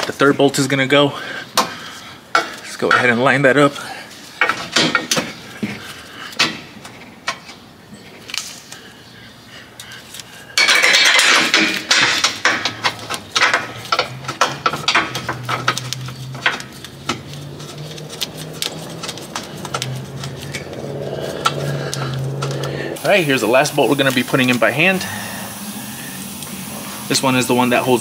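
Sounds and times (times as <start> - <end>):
metal clinks and knocks: 10.6 - 22.5
metallic rattling: 10.6 - 22.9.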